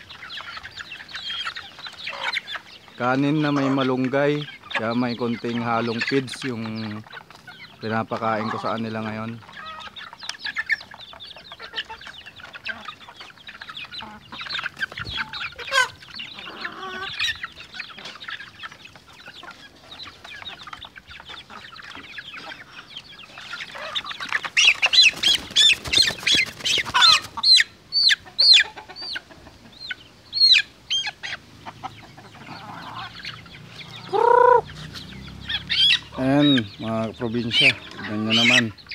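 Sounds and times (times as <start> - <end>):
flurry of calls and clatter: 0.0 - 29.8
chicks clucking and peeping: 0.0 - 38.9.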